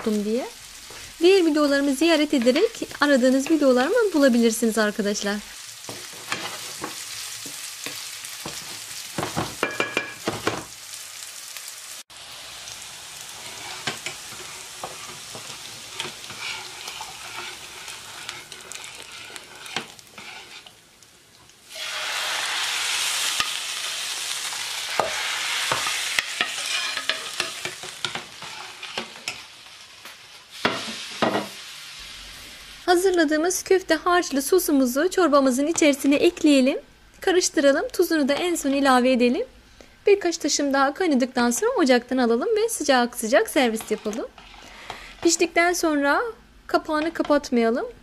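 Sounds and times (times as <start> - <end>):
meatballs sizzling in oil: 0.0 - 39.5, 40.2 - 47.6
wooden spoon knocking a pan: 9.2 - 10.7.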